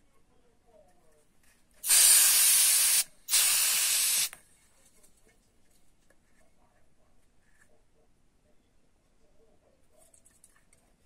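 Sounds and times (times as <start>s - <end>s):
compressed air can hissing: 1.8s - 4.4s.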